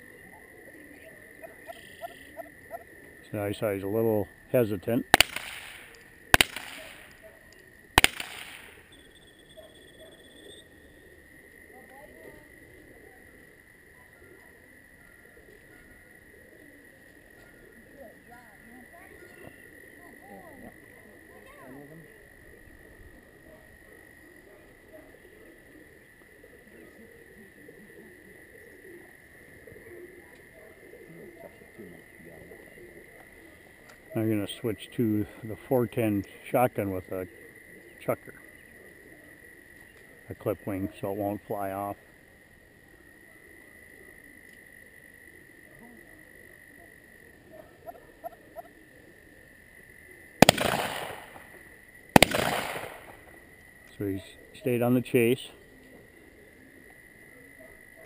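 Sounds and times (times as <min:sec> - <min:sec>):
frogs calling: 0:00.0 - 0:58.0
shotgun shots: 0:05.1 - 0:07.2, 0:08.0 - 0:08.9, 0:50.4 - 0:53.3.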